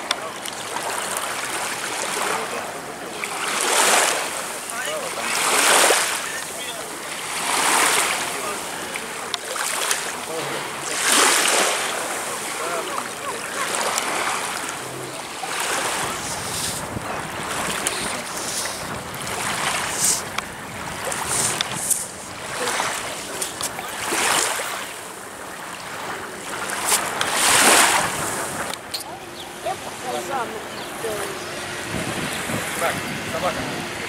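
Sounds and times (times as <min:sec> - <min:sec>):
waves washing on sand: 0:00.0 - 0:34.0
wind on microphone: 0:15.8 - 0:24.2, 0:30.7 - 0:34.0.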